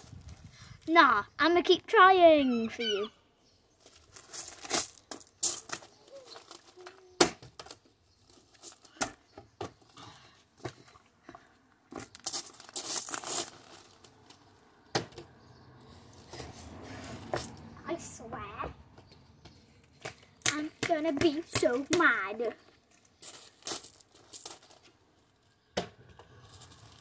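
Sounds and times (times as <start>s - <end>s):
footsteps on gravel: 3.8s - 6.8s, 10.6s - 14.4s, 20.2s - 24.9s
plastic bottle crinkling: 12.0s - 14.5s.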